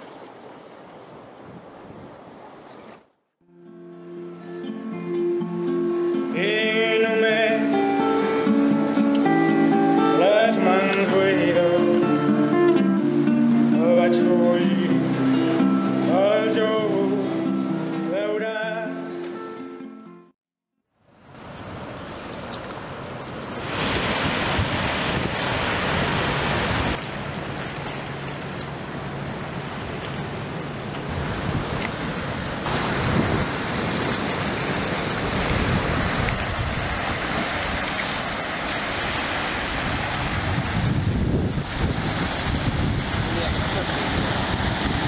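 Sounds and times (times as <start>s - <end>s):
waves breaking on rocks: 21.3s - 45.0s.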